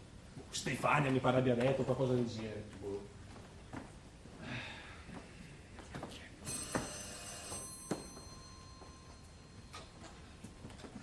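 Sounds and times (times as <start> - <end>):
doorbell ringing: 6.4 - 10.8.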